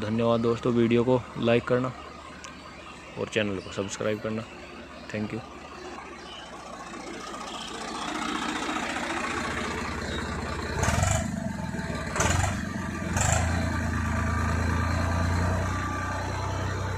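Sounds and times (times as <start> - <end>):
tractor diesel engine running: 0.0 - 16.9
engine loud bursts: 5.5 - 16.9.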